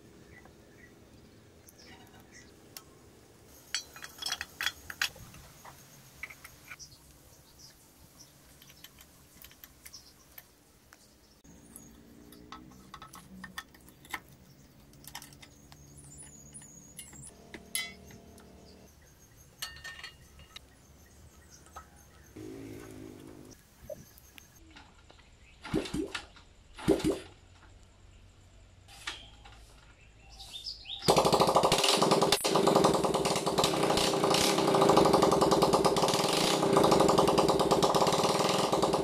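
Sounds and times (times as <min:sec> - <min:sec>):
metallic clicks of steel parts: 0:03.6 - 0:06.8, 0:11.7 - 0:18.7, 0:19.5 - 0:20.7
faint low hum: 0:22.3 - 0:24.8.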